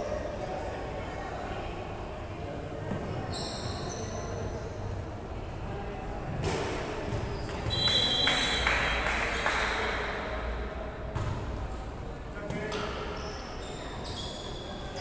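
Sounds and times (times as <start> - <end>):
background voices in a hall: 0.0 - 15.0
referee whistle: 7.7 - 8.6.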